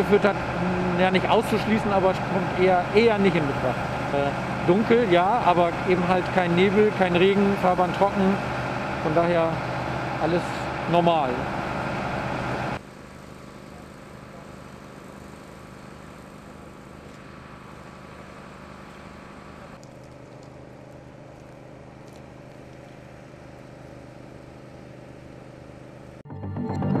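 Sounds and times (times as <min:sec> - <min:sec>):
engine idling hum: 0:00.0 - 0:26.2.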